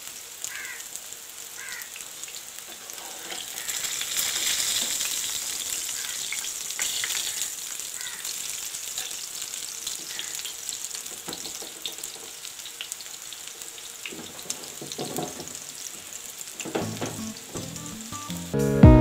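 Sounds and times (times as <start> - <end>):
patties sizzling in oil: 0.0 - 18.2
loud background music: 17.2 - 19.0.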